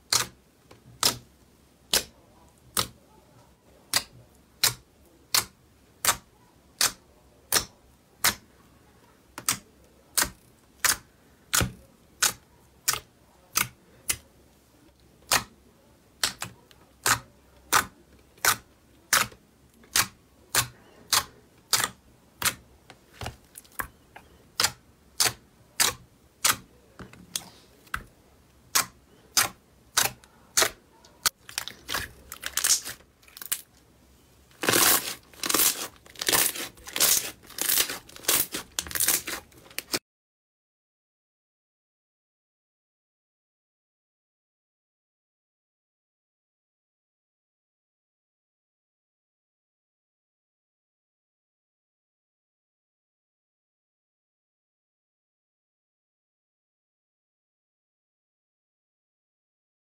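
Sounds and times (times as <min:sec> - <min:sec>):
slime clicking under fingertips: 0:01.0 - 0:01.2, 0:02.7 - 0:03.0, 0:03.9 - 0:06.2, 0:06.8 - 0:08.4, 0:09.4 - 0:14.2, 0:16.2 - 0:22.6, 0:24.6 - 0:26.6, 0:28.7 - 0:33.6, 0:34.6 - 0:40.0.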